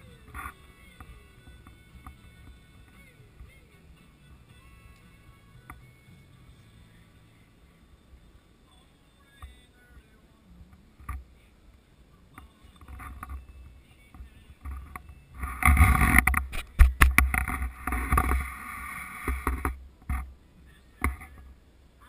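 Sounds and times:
rustling and handling noise: 0:10.7 - 0:21.6.

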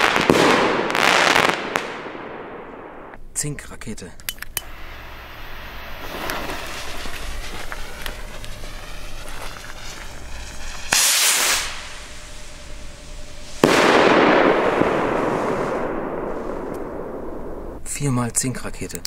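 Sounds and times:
firework break crackling: 0:00.0 - 0:03.2, 0:04.6 - 0:17.8
firework burst: 0:00.0 - 0:03.2, 0:04.6 - 0:17.8
rocket launching hiss: 0:04.6 - 0:17.8.

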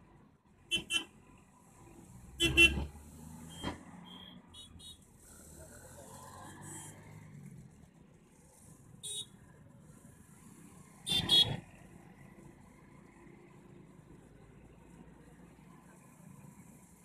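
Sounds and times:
vehicle engine and road noise: 0:00.0 - 0:17.0
vehicle horn honking: 0:00.7 - 0:01.1, 0:02.4 - 0:02.8, 0:11.1 - 0:11.6.

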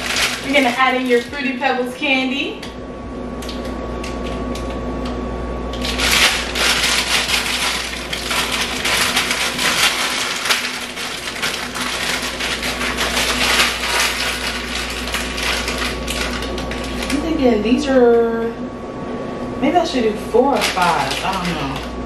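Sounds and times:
candy crackling and clattering: 0:00.0 - 0:01.6, 0:05.7 - 0:17.4, 0:20.5 - 0:22.0
steady low hum: 0:00.0 - 0:22.0.

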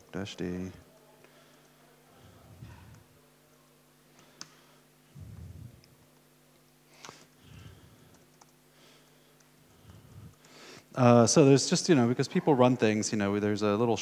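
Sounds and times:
steady low hum: 0:00.0 - 0:14.0
soft low sounds: 0:05.1 - 0:06.2.

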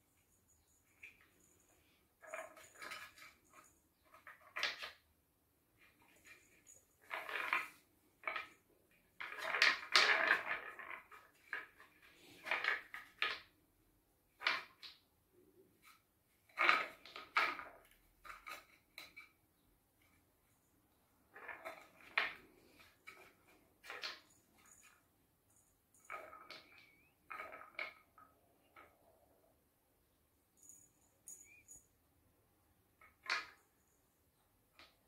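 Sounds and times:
balls rolling on wooden tracks: 0:05.8 - 0:13.6, 0:16.5 - 0:19.3, 0:21.3 - 0:24.9, 0:25.5 - 0:29.2.

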